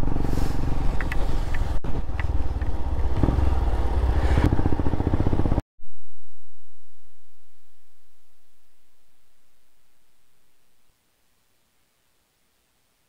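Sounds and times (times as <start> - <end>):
tyres on wet road: 0.0 - 5.5
motorcycle engine running: 0.0 - 5.6
wind noise: 0.0 - 9.0.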